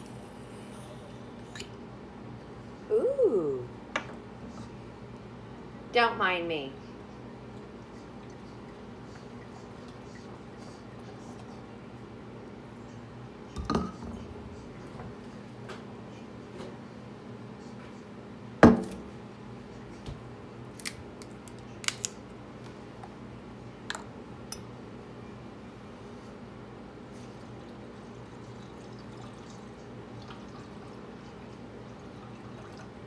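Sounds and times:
juice pouring into glass: 28.4 - 31.0.

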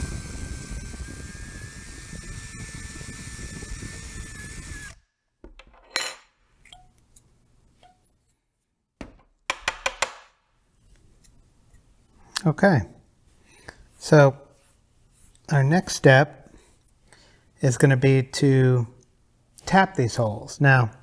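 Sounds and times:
cordless drill whining: 0.0 - 5.1.

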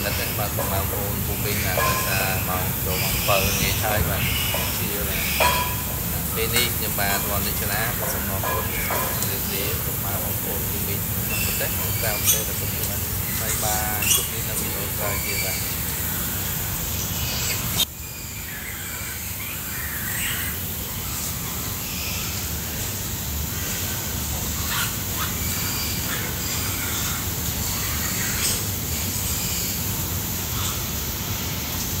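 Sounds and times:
animal chirps and squeaks: 0.0 - 22.4.

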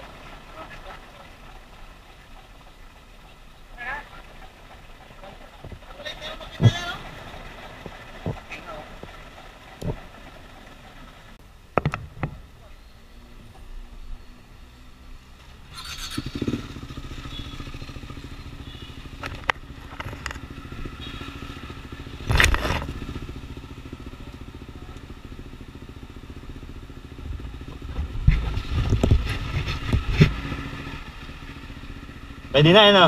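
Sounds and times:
motorcycle engine idling: 0.0 - 33.0
engine revving bursts: 15.6 - 23.5.

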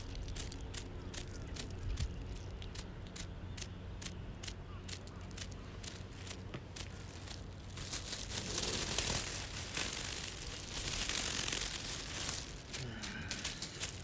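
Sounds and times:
small clicks: 0.0 - 7.8.

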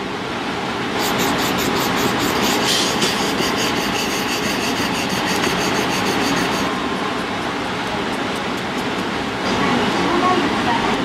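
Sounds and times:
knife scratching stone: 1.0 - 6.7.

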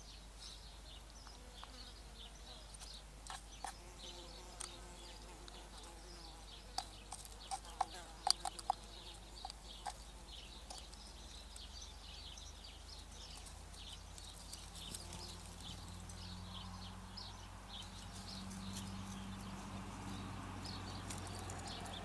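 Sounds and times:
small birds chirping and singing: 0.0 - 22.0
crow pecking at feed dish: 2.8 - 3.9, 5.4 - 11.9.

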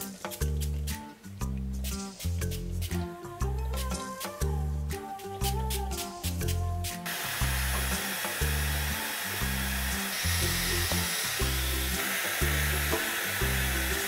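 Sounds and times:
background music with bass beat: 0.0 - 7.0
hair dryer running: 7.1 - 14.0.

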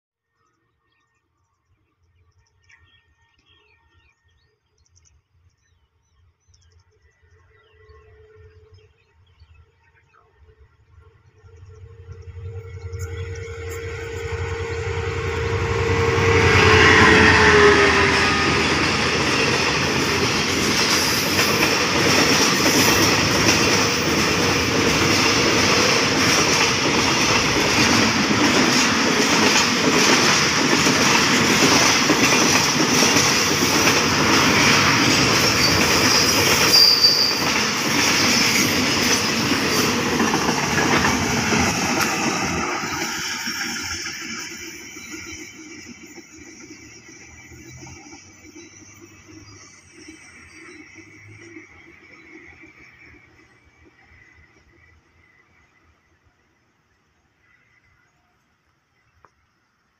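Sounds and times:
locomotive tone: 7.2 - 56.0
high wheel squeal: 11.8 - 18.7, 34.5 - 37.8.

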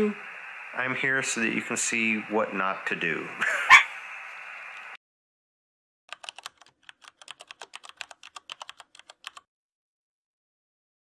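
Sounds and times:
computer keyboard typing: 6.1 - 9.5.

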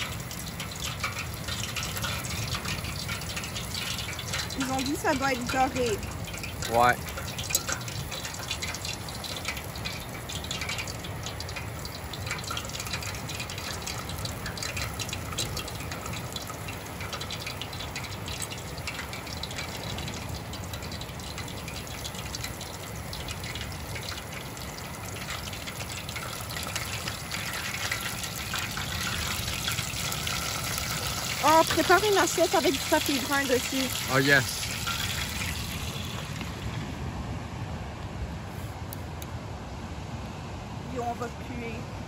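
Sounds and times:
fish deep-frying in oil: 0.0 - 37.1.

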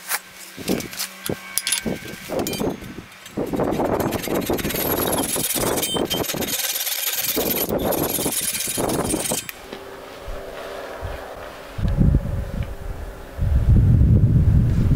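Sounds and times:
handsaw cutting wood: 0.6 - 9.6.

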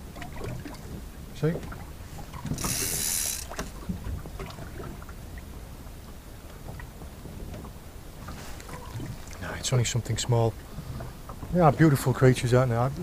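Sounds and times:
boat and sea rumble: 0.0 - 13.0
reel and rod handling clicks: 2.4 - 3.8
fishing reel ratcheting: 2.5 - 3.7.

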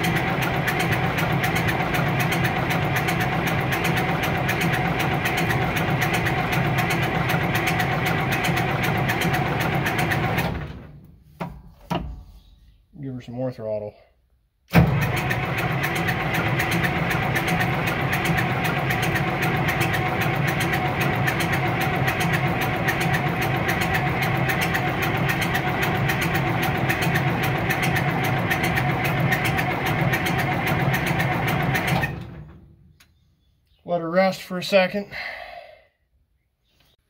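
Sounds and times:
diesel engine cranking: 0.0 - 11.1, 14.7 - 33.1.

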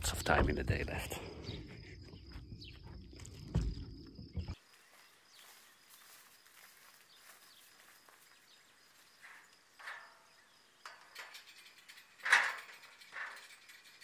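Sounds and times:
low rumble and thumps on microphone: 0.0 - 4.6.

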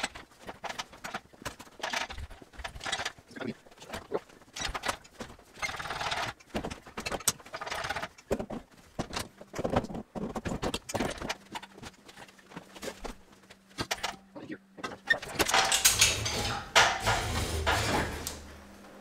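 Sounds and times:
engine knocking and clunking on straps: 0.0 - 14.0
metal scraping and bumping: 14.8 - 18.5.

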